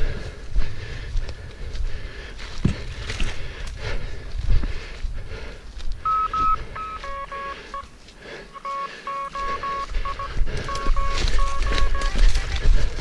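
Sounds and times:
morse code beeping: 6.0 - 13.0.

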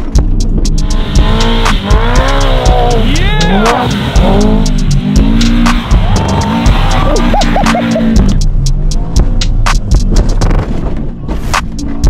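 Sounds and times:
background music with steady beat: 0.0 - 12.0
car engine revving: 0.0 - 12.0
tyres spinning on frozen dirt: 0.9 - 8.3.

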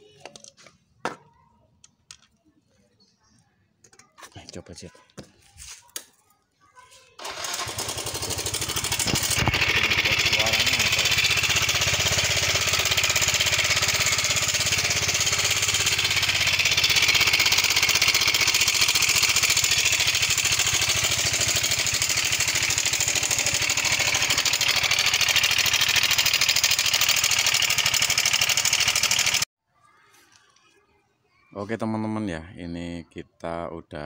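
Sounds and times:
scooter engine ticking rattle: 7.2 - 29.5.

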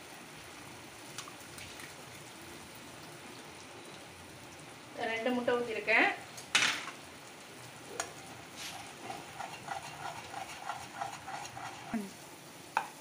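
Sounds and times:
eggs sizzling: 0.0 - 13.0
spatula scraping pan: 8.0 - 12.1.

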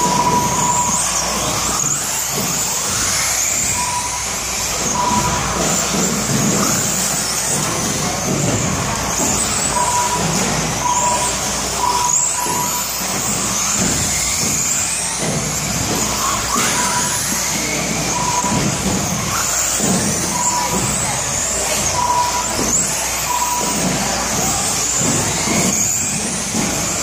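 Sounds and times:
short beeps: 0.0 - 1.2, 3.6 - 5.9, 9.2 - 13.9, 18.1 - 18.8, 21.8 - 24.0
rc car motors whining: 0.0 - 27.0
tyres rushing on carpet: 0.0 - 27.0.

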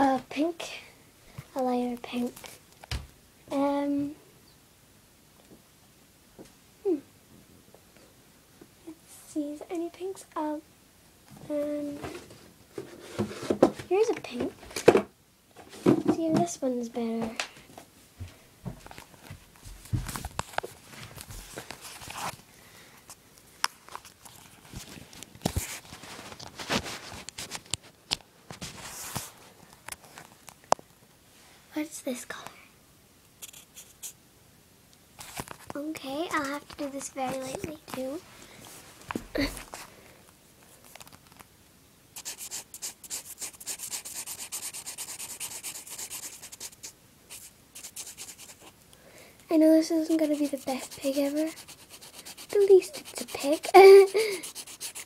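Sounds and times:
felt-tip pen scribbling on paper: 42.2 - 48.7, 50.0 - 55.0.

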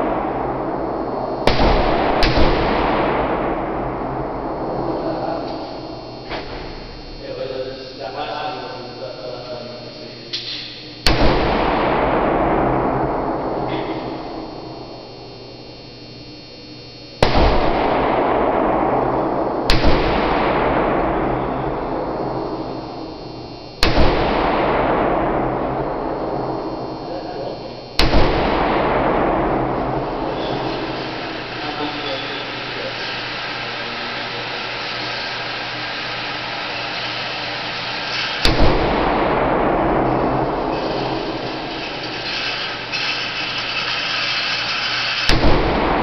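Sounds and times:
pistol shots with echo: 0.0 - 7.2, 11.0 - 15.5, 17.2 - 46.0
fan-like rush: 17.7 - 46.0.

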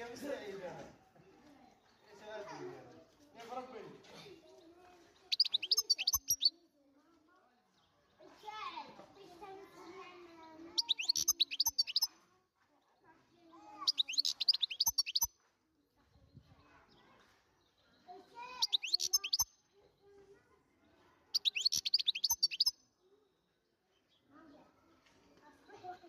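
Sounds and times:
goldfinch twittering and chirping: 5.2 - 6.5, 10.7 - 12.1, 13.8 - 15.3, 18.6 - 19.5, 21.4 - 22.7.

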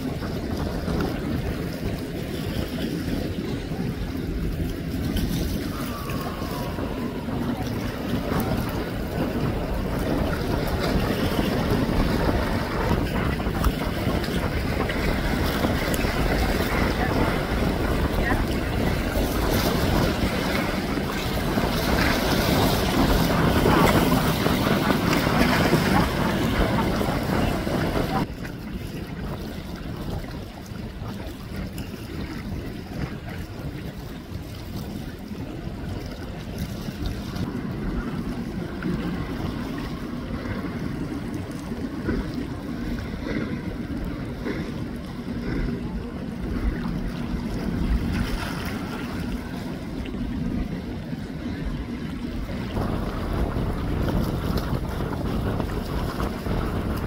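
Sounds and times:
low hum: 0.0 - 33.8
boat rumble: 0.0 - 57.0
water noise: 0.0 - 57.0
wind buffeting microphone: 0.0 - 57.0.

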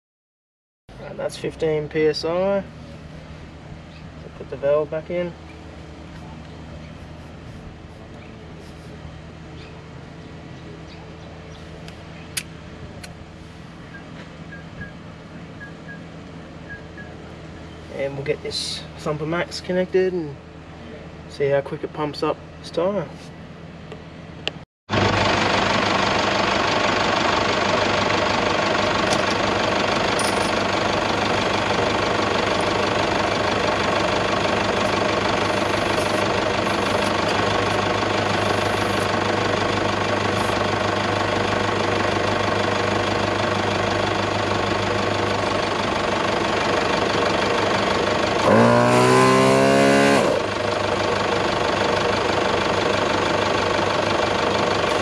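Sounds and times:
air compressor running: 24.9 - 55.0
rising whine: 28.8 - 51.1.

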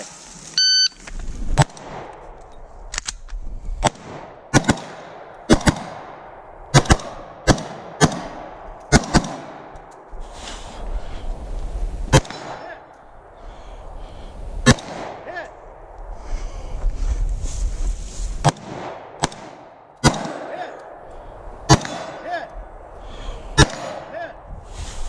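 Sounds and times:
gunshots: 3.8 - 9.7, 12.1 - 12.7, 14.6 - 15.3, 18.4 - 20.8, 21.6 - 22.3, 23.6 - 24.3.

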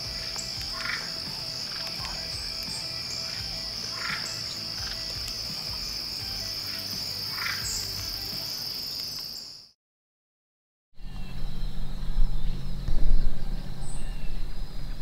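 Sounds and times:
crickets trilling: 0.0 - 9.7.

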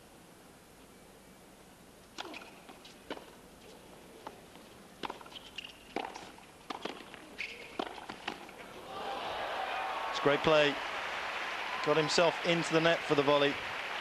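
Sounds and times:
tennis ball strikes: 2.2 - 3.4, 5.0 - 8.6
shoes squeaking on court: 2.2 - 8.6.

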